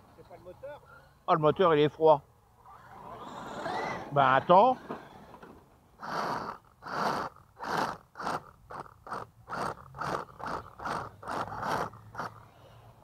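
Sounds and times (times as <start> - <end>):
rc truck drivetrain gear noise: 2.6 - 13.0.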